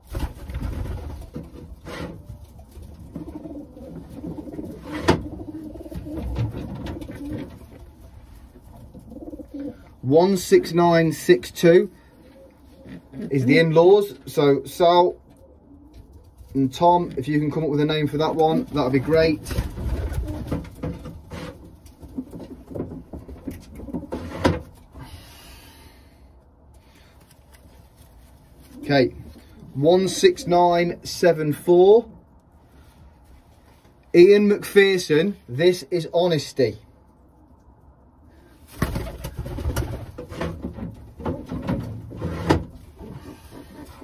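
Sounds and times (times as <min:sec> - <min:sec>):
pigeon wings flapping: 0:00.0 - 0:01.6, 0:38.7 - 0:40.2
knocks and rustles: 0:00.0 - 0:09.2, 0:18.2 - 0:24.9, 0:38.7 - 0:44.0
low pigeon sounds: 0:00.0 - 0:34.0, 0:37.0 - 0:44.0
pigeons cooing: 0:00.8 - 0:10.0, 0:12.0 - 0:13.5, 0:15.2 - 0:16.4.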